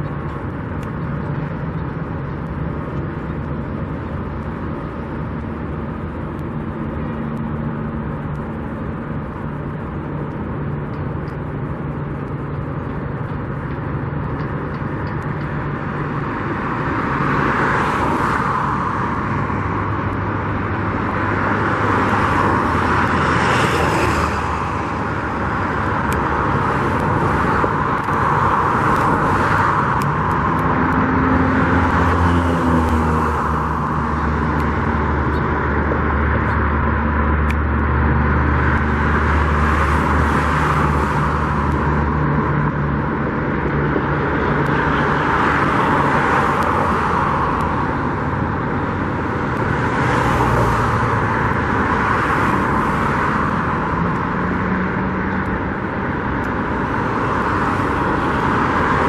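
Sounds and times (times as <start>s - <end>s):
traffic hum: 0.0s - 59.0s
vehicles passing by: 0.0s - 59.0s.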